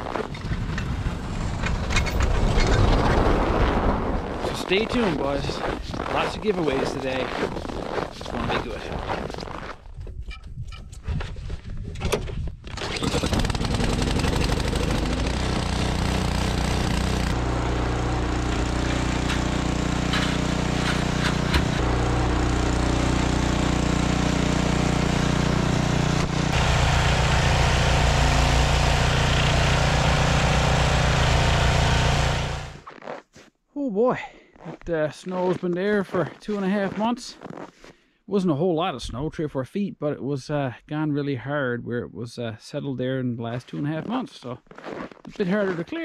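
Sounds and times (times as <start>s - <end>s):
snowblower engine running: 12.9s - 32.8s.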